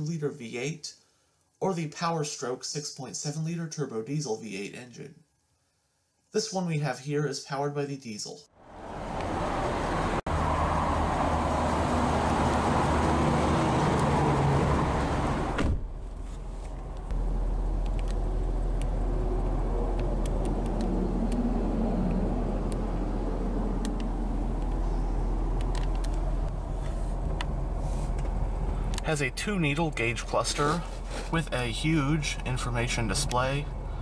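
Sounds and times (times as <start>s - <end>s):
click: 23.8s - 24.8s.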